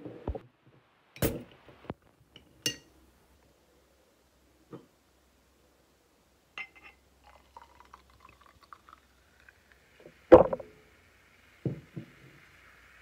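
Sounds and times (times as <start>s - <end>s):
liquid pouring into a glass: 7.2s - 10.6s
fizzing hiss: 7.3s - 13.0s
glass knocking: 10.3s - 10.6s.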